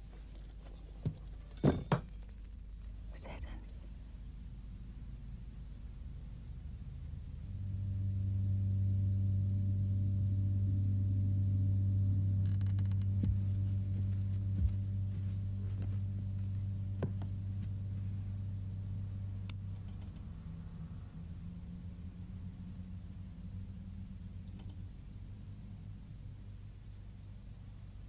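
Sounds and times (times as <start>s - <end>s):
low droning hum: 0.0s - 28.0s
faint clicks and ticks: 19.4s - 20.3s.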